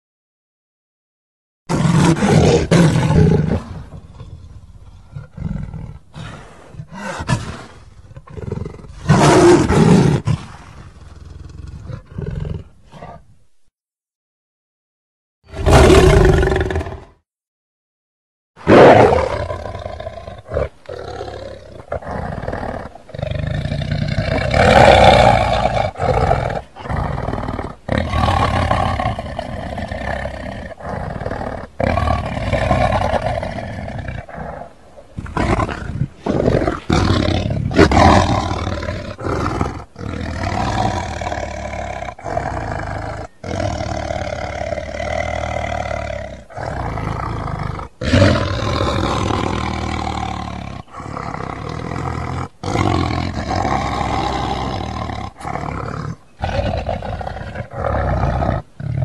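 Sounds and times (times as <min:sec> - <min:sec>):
loud creature roars: 0:15.5 - 0:17.2.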